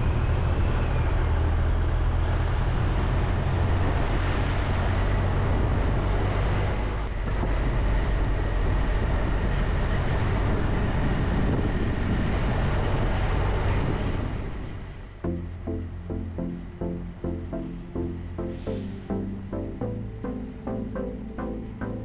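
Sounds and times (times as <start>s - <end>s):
wind noise on microphone: 2.5s - 14.9s.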